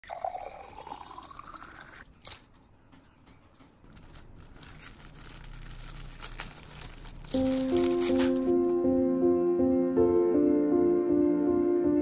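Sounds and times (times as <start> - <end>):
water pouring into glass jar: 0.0 - 2.1
plastic wrapping rustling: 3.9 - 8.9.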